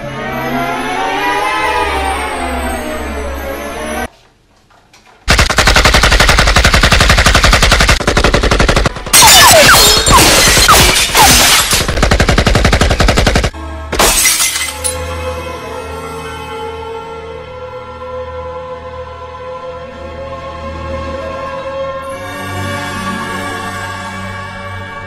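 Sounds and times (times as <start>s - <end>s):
music: 0.0s - 4.1s, 13.5s - 25.0s.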